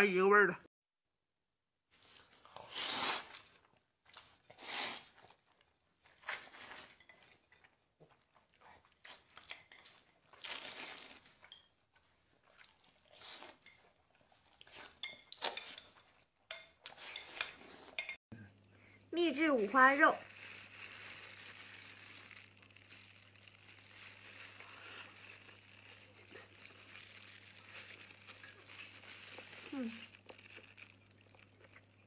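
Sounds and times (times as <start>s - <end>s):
noodles being slurped: 8.4s - 11.4s, 19.4s - 32.0s.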